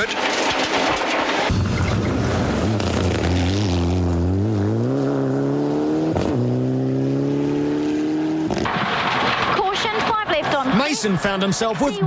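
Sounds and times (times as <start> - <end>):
rally car accelerating: 0.1 - 11.8.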